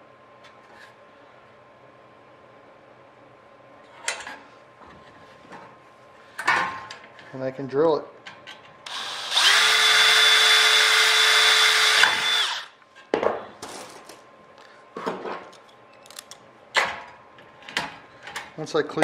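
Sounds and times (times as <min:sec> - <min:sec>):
cordless drill drilling metal: 0:08.9 - 0:12.8.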